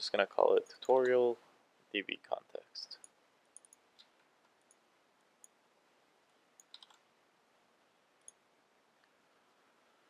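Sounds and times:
faint keyboard and mouse clicks: 0:02.9 - 0:05.6, 0:06.5 - 0:07.1, 0:08.2 - 0:08.4.

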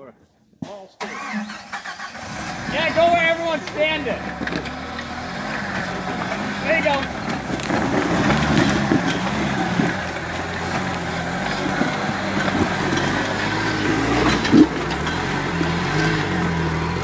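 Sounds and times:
vehicle engine running under load: 0:01.8 - 0:17.0.

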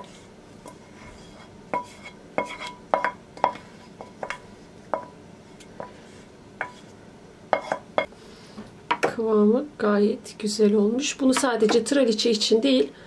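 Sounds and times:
wooden spoon scraping pot: 0:00.0 - 0:08.1.

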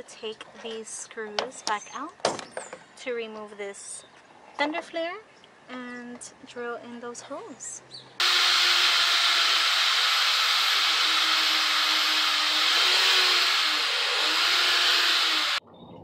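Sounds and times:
electric drill drilling plastic: 0:08.2 - 0:15.6.

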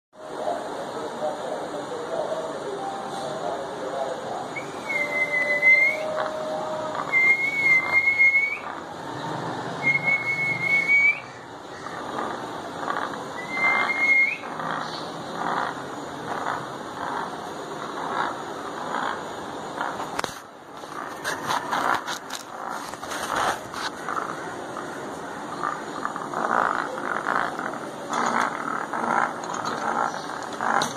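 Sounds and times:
parrot whistling: 0:04.5 - 0:08.7, 0:09.8 - 0:11.4, 0:13.4 - 0:14.5.

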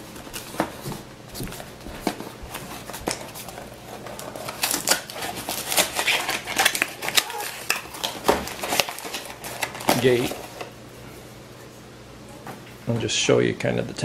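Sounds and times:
cardboard flaps scraping: 0:00.0 - 0:10.7
paper packaging rustling: 0:00.0 - 0:10.7.

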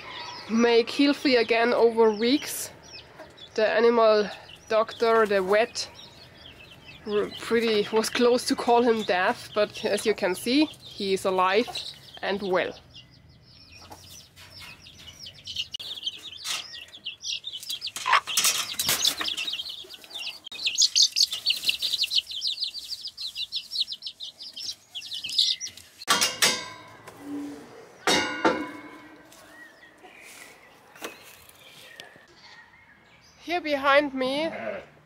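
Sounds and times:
chicks peeping: 0:00.0 - 0:26.1
metal gate latch clanking: 0:26.1 - 0:27.0.

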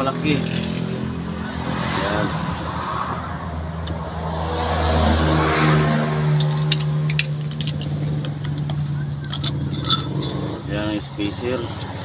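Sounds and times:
vehicle engine revving: 0:03.9 - 0:12.0.

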